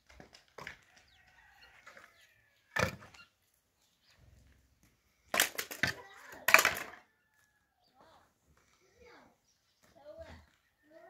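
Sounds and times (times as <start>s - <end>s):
sharp cracking impacts: 5.3s - 7.0s.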